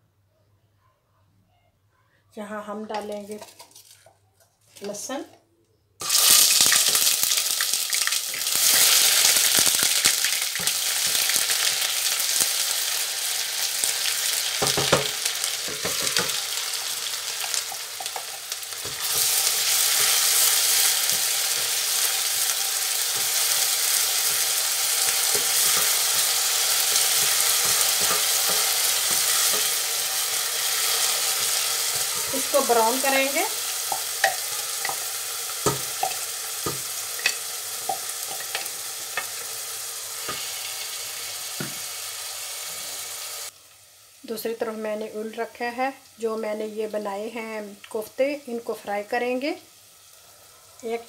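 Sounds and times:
onion paste sizzling in hot oil: 0:06.0 - 0:51.0
wooden spoon knocking on pot: 0:14.6 - 0:16.4, 0:35.6 - 0:38.6.

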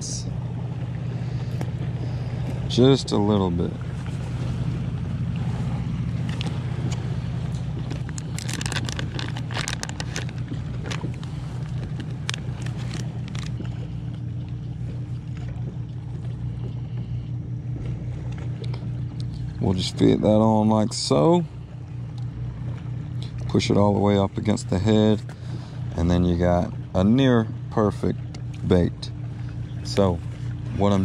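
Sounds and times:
steady low hum: 0:00.0 - 0:31.0
plastic package crinkling: 0:07.8 - 0:13.6.

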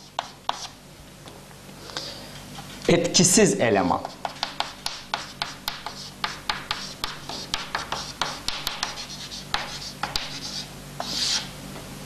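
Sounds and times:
chalk tapping and scratching: 0:00.0 - 0:00.8, 0:04.0 - 0:11.5.

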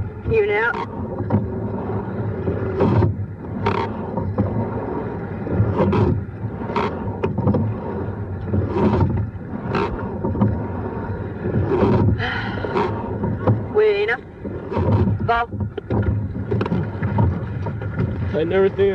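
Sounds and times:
water rumbling along hull: 0:00.0 - 0:18.9
oar and oarlock knocks: 0:11.6 - 0:13.7, 0:14.4 - 0:18.4.

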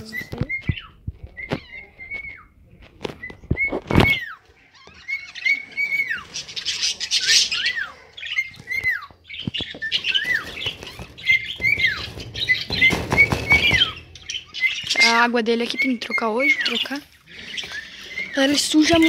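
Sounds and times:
birds whistling calls: 0:00.0 - 0:02.5, 0:03.2 - 0:19.0
birds chattering: 0:00.0 - 0:19.0
loud knock: 0:11.6 - 0:14.4.

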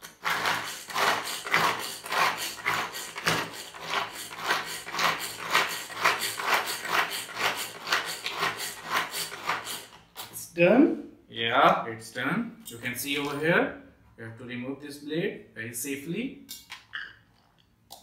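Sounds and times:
pull-cord vegetable chopper whirring: 0:00.0 - 0:10.2.

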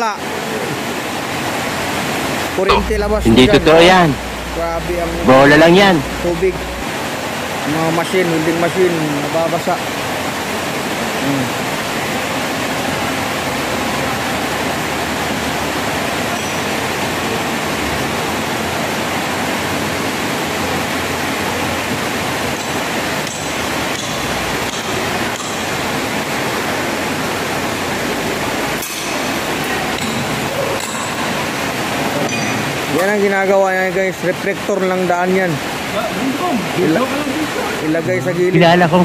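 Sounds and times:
heavy rain falling: 0:35.0 - 0:39.0.

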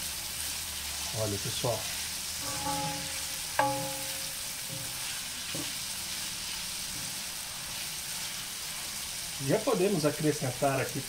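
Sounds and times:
vegetables sizzling in a pan: 0:00.0 - 0:11.0
sharp ringing knock: 0:02.4 - 0:05.0.

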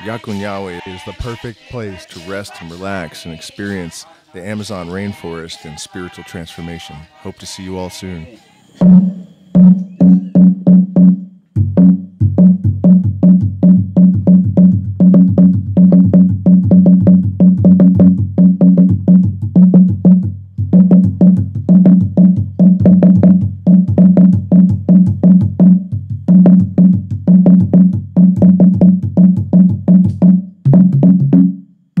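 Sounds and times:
slit drum beaten with mallets: 0:08.8 - 0:32.0.

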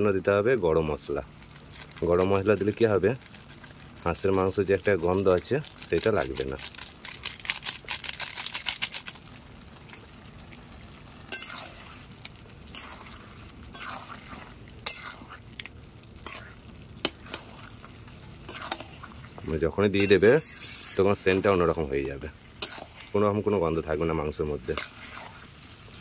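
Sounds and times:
food sizzling: 0:00.0 - 0:26.0
plastic packet crinkling: 0:01.2 - 0:10.2
metal spatula scraping pan: 0:11.3 - 0:12.0, 0:12.7 - 0:15.4, 0:16.2 - 0:21.6, 0:22.6 - 0:23.2, 0:24.6 - 0:25.5.

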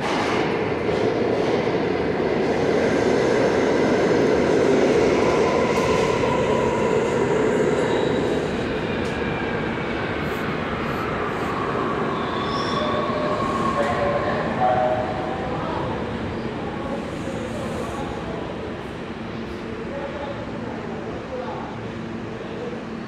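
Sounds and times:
subway train wheels rumbling: 0:00.0 - 0:23.0
high wheel squeal: 0:12.2 - 0:14.0.

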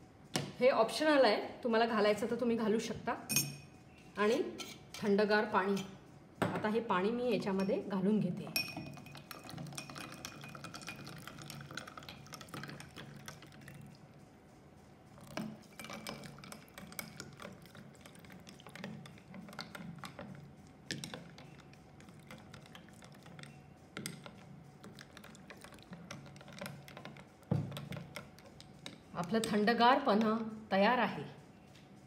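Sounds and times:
spoon clinking against glass: 0:03.3 - 0:03.7, 0:08.5 - 0:11.4
water pouring into glass: 0:08.8 - 0:14.0.

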